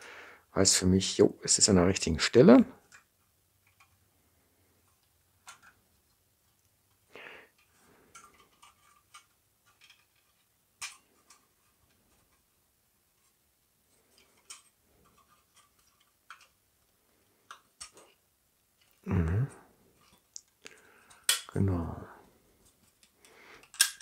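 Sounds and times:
sheet metal parts clicking: 4.8s - 7.0s, 7.6s - 12.5s, 14.0s - 16.6s, 17.4s - 18.2s, 20.0s - 21.6s, 22.6s - 24.0s.

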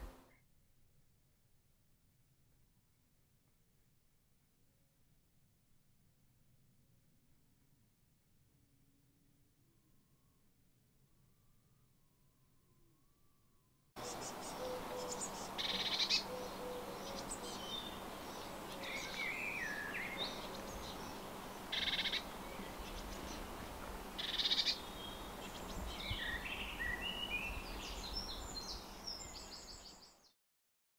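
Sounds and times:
outdoor hiss: 0.0s - 0.2s, 14.0s - 30.0s
high bird trill: 14.0s - 23.4s, 24.2s - 25.6s
birds singing and calling: 14.0s - 30.3s.

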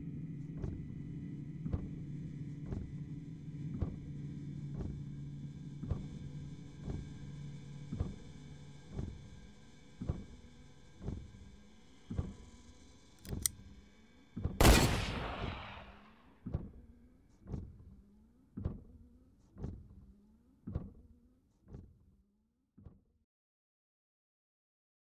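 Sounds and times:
low steady hum: 14.6s - 16.1s
sharp click: 14.6s - 16.1s
gunshot: 14.6s - 16.2s.

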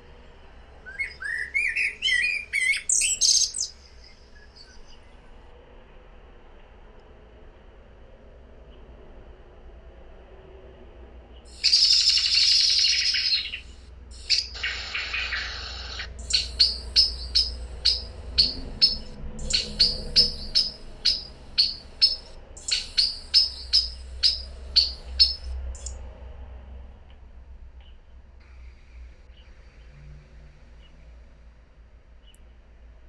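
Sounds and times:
blackbird harsh chatter: 1.0s - 4.1s, 11.5s - 25.9s
blackbird short sharp calls: 11.5s - 25.9s.

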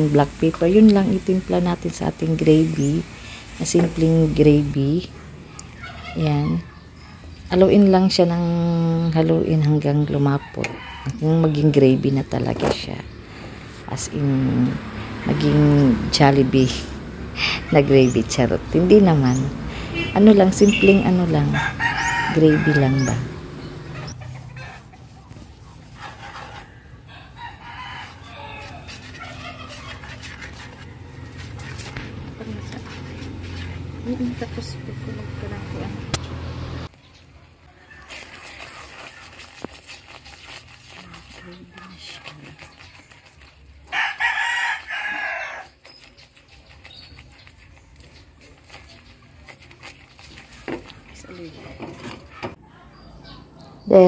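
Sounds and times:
wooden spoon stirring gravy: 20.0s - 23.6s, 24.7s - 34.8s, 37.6s - 52.6s
rooster crowing: 21.4s - 24.9s, 26.2s - 29.8s, 43.9s - 45.8s.

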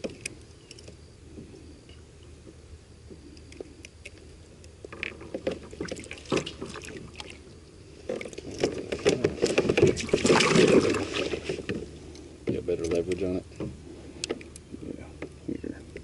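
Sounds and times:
knocks and scraping: 8.0s - 14.4s.

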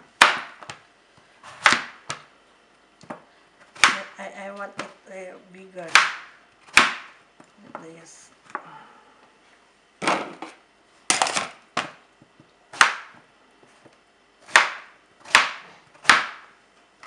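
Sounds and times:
knife chopping on plastic board: 0.2s - 0.8s, 1.5s - 2.3s, 3.0s - 5.0s, 5.8s - 7.2s, 12.7s - 13.2s, 14.4s - 16.5s.

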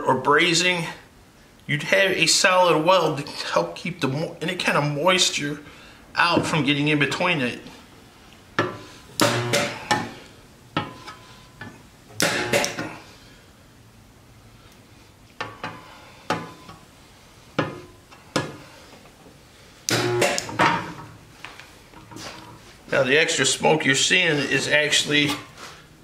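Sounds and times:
electrical hum: 0.0s - 26.0s
spot welder cracks: 9.2s - 10.1s, 12.2s - 13.0s, 19.9s - 20.6s.

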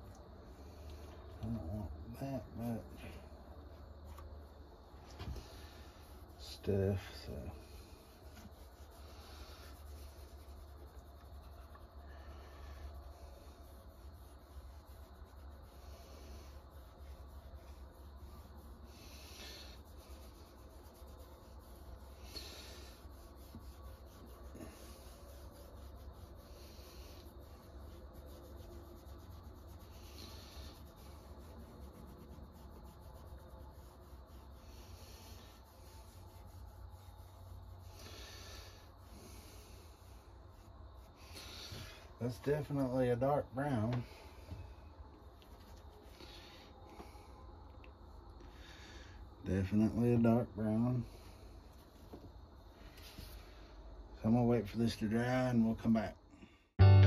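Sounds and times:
low hum: 56.8s - 57.0s.

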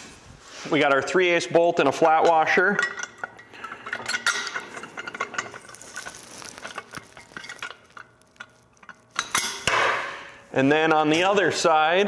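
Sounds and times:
metal bolt and washer clinking: 1.8s - 10.3s.

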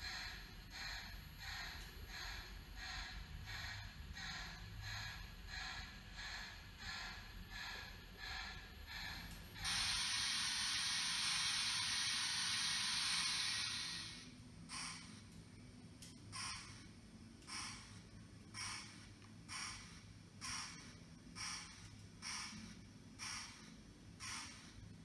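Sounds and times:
model locomotive steam chuffs: 0.0s - 15.3s, 16.0s - 16.9s, 17.5s - 25.0s
loud steam hiss: 9.6s - 15.2s, 16.3s - 16.8s.

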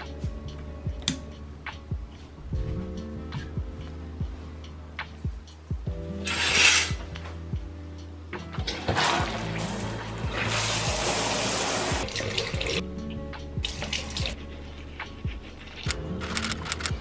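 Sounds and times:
soft background music: 0.0s - 17.0s
water running from a tap: 9.0s - 12.8s.

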